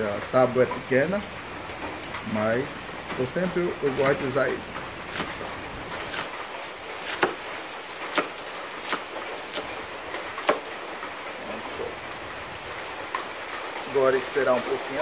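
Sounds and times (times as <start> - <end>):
knife chopping cabbage: 3.0 - 10.9.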